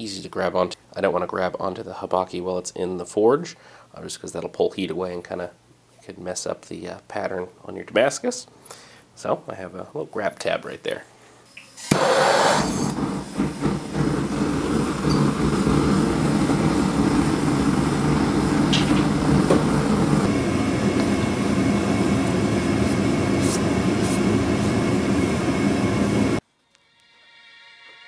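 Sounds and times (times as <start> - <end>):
gas forge burner rushing: 11.8 - 26.4.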